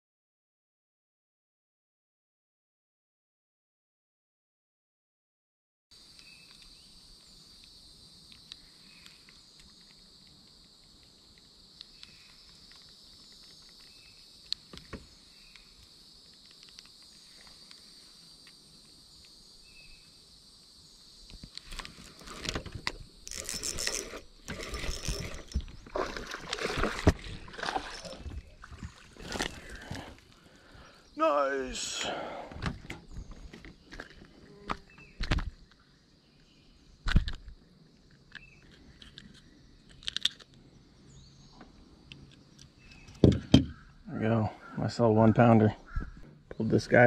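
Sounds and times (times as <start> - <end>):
high insect buzz: 6.0 - 44.4
fish splashing and rustling: 23.3 - 30.6.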